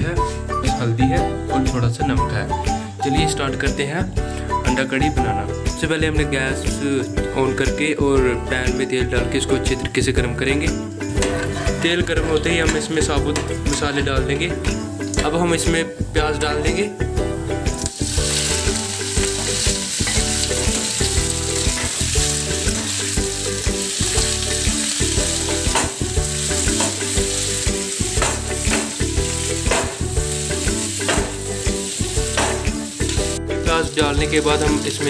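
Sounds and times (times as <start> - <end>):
onions sizzling in hot oil: 16.0 - 35.0.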